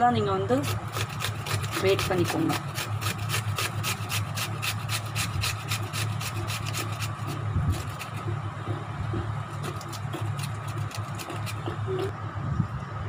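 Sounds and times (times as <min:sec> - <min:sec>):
cucumber grated on metal grater: 0:00.2 - 0:08.4, 0:09.1 - 0:12.1.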